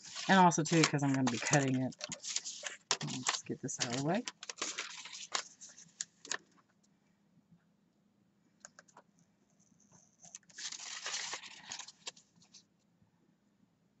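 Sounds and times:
loud paper rustle: 0.0 - 6.4, 10.3 - 12.6
paper taps and crinkles: 0.0 - 6.6, 10.2 - 12.6.

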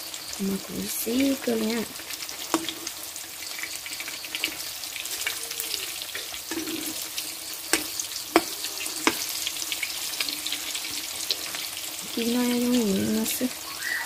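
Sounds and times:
meat sizzling in hot oil: 0.0 - 14.0
ladle stirring in wok: 2.0 - 12.2
ladle knocking against wok: 7.7 - 9.3.

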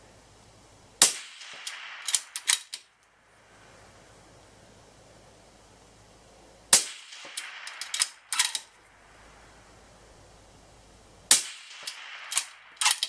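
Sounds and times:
suppressed rifle shot: 1.0 - 2.8, 6.7 - 8.7, 11.3 - 13.0
rifle bolt clicking: 1.7 - 2.9, 7.4 - 8.7, 11.8 - 13.0.

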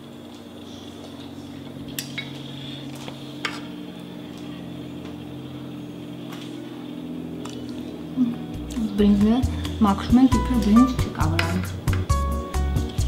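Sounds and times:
steady low hum: 0.0 - 13.0
dishes and utensils clinking: 1.9 - 2.5, 10.6 - 12.2.

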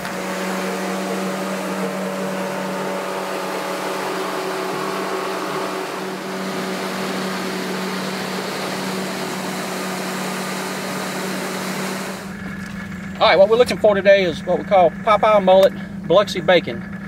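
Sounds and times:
outboard motor running: 0.0 - 17.0.

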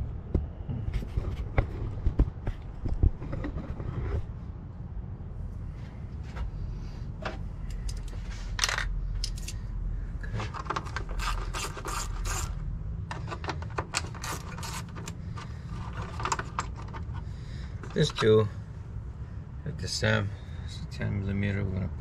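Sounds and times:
low steady rumble: 0.0 - 22.0
ratchet clicking: 10.8 - 15.2.

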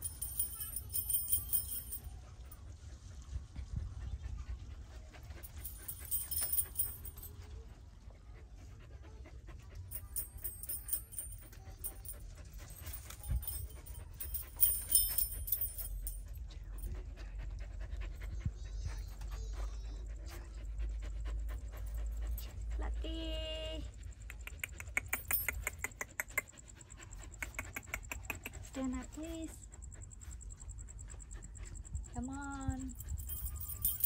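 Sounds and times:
dog panting: 0.0 - 34.0.

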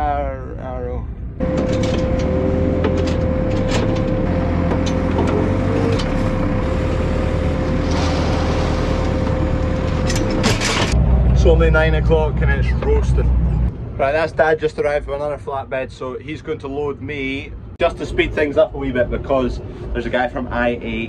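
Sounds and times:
knocks and clicks: 1.4 - 6.2
diesel engine running under load: 1.4 - 13.7.

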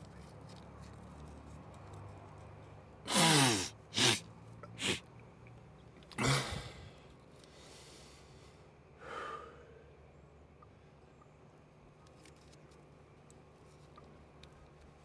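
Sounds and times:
man snorting and sniffing: 3.1 - 5.0, 6.2 - 6.9.

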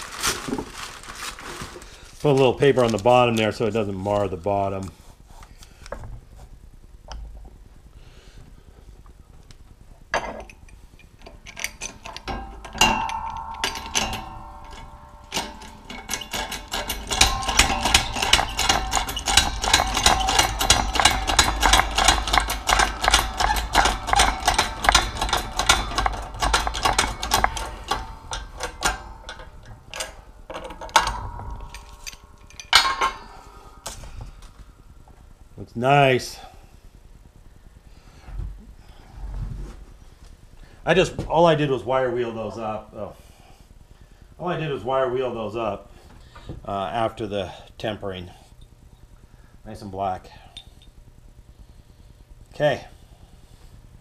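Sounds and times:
rapid metallic clicking: 10.7 - 34.0
metallic ringing tone: 11.5 - 34.6.

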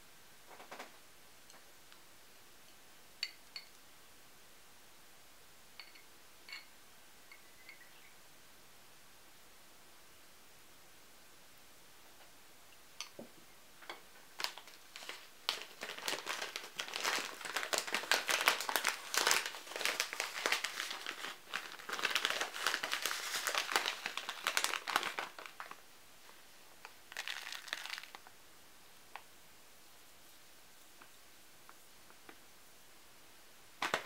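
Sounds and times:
crinkling handling noise: 13.8 - 28.4, 33.8 - 34.0.

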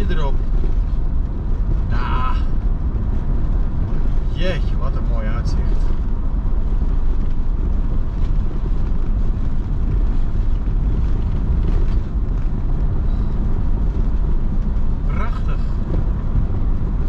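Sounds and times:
motorhome engine and tyre noise: 0.0 - 17.0.

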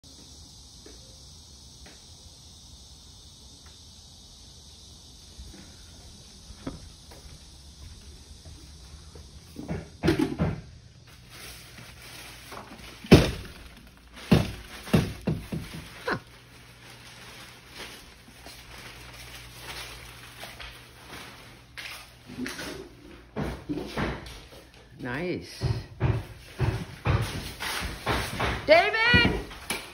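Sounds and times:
footsteps on plastic sheeting: 11.0 - 22.4.

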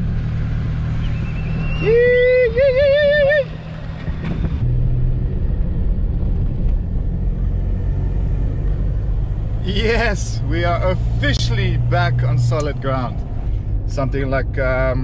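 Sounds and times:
engine and tyres rumbling: 0.0 - 15.0
warbling siren whoop: 1.3 - 3.6.

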